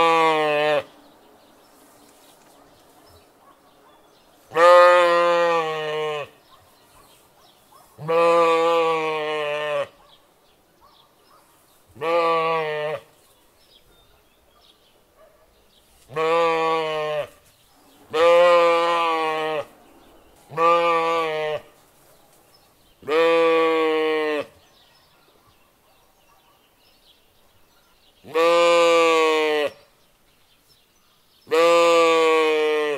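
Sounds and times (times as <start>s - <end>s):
sheep bleating: 0.0s - 0.9s, 4.5s - 6.4s, 8.0s - 10.0s, 12.0s - 13.1s, 16.1s - 17.4s, 18.1s - 19.8s, 20.5s - 21.7s, 23.0s - 24.6s, 28.3s - 29.8s, 31.5s - 32.9s.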